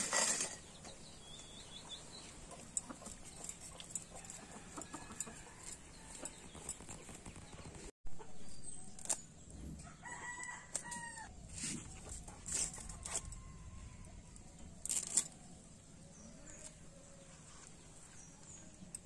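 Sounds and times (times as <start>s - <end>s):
rooster crowing: 9.8s - 11.3s, 13.0s - 14.2s.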